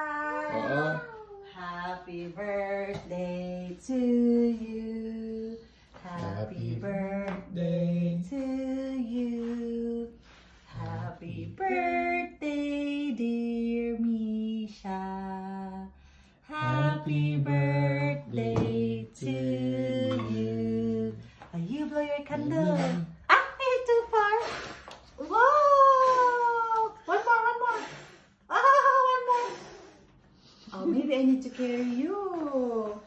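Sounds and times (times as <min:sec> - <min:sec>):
woman singing: 0:00.0 - 0:23.1.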